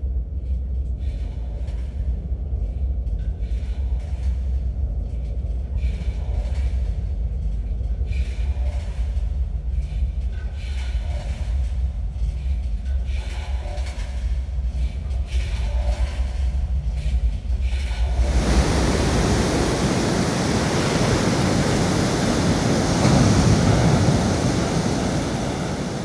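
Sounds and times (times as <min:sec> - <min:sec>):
low rumble: 0:17.7 - 0:26.0
heavy surf breaking: 0:18.0 - 0:26.0.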